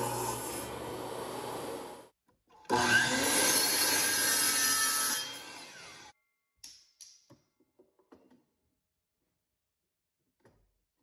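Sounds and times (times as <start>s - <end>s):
table saw cutting wood: 0.0s - 2.1s, 2.7s - 6.1s
miter saw cutting wood: 2.7s - 6.1s.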